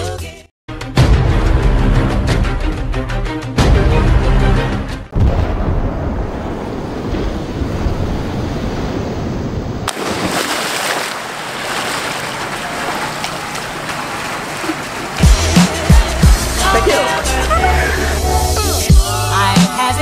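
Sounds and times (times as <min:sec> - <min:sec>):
churning water: 0:07.0 - 0:19.5
person splashing into pool: 0:09.9 - 0:16.3.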